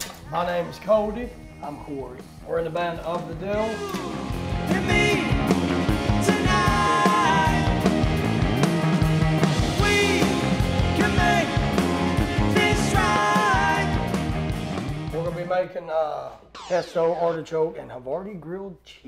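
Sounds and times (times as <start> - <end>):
rock band with electric guitars: 3.5 - 15.2.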